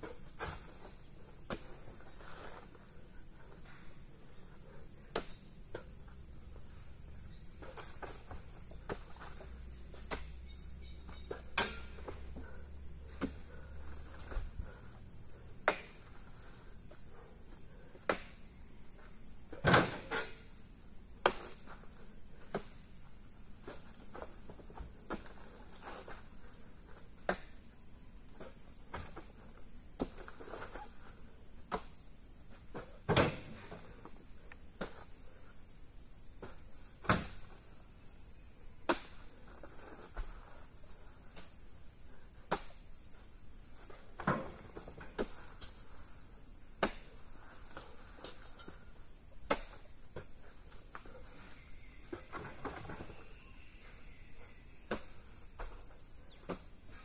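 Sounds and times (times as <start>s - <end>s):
high-pitched insect drone: 50.4s - 57.0s.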